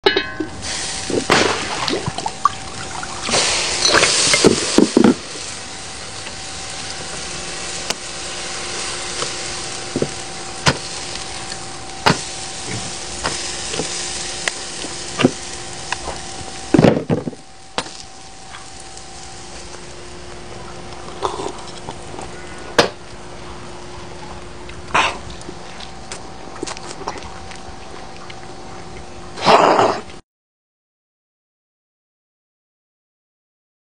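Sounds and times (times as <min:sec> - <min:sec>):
patties sizzling on grill: 0:00.2 - 0:29.2
biting into burger: 0:24.8 - 0:28.5.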